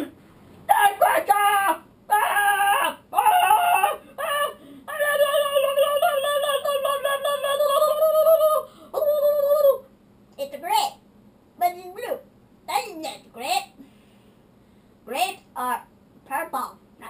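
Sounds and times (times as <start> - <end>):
boy singing nonsense sounds: 0.0 - 9.9.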